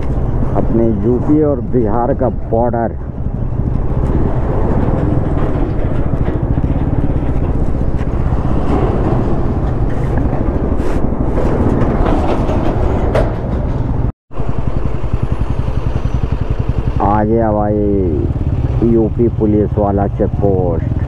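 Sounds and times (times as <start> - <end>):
motorcycle engine running: 0.0 - 12.7, 13.3 - 21.0
wind noise on microphone: 0.0 - 14.1.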